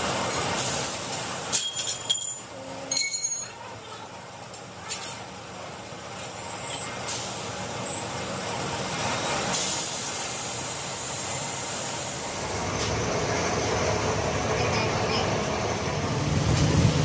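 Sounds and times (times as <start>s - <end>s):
compressed air hissing: 9.5s - 12.6s.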